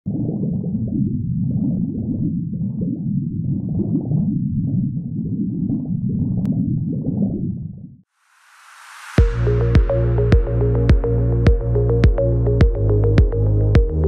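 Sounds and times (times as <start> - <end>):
muffled underwater rumble: 0.1 - 8.0
rising whoosh: 8.2 - 13.6.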